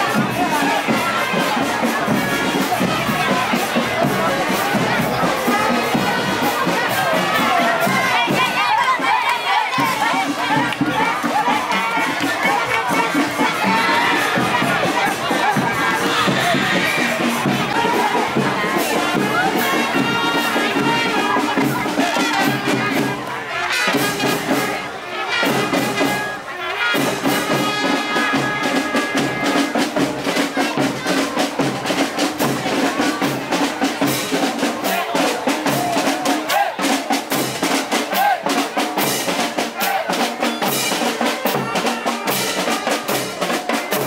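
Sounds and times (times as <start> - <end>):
steady drum beat: 0.0 - 44.0
brass horns holding notes: 0.1 - 29.8.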